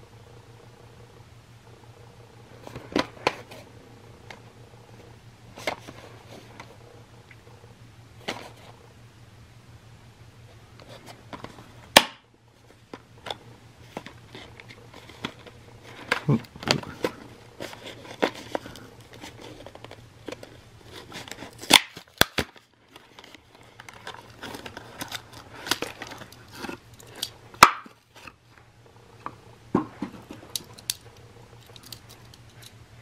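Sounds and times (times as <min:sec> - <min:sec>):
plastic blister pack crinkling: 0:12.7 - 0:28.4.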